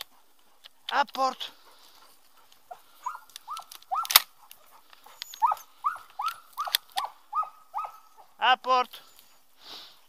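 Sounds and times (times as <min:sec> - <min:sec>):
dog whining: 0:02.7 - 0:08.4.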